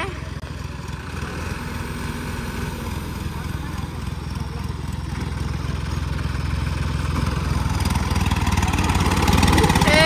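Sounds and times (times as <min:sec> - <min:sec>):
tractor diesel engines rumbling: 0:00.0 - 0:10.0.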